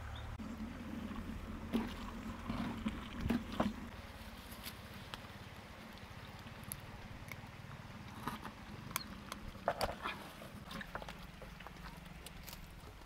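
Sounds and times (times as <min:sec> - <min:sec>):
low steady rumble: 0:00.0 - 0:13.0
leaves rustling: 0:03.5 - 0:08.0
small crackles and clicks: 0:10.8 - 0:13.0.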